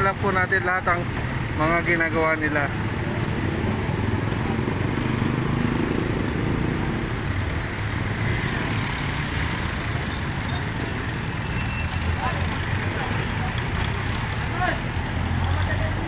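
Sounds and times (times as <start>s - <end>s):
street noise: 0.0s - 16.0s
vehicle engine rumbling: 0.0s - 16.0s.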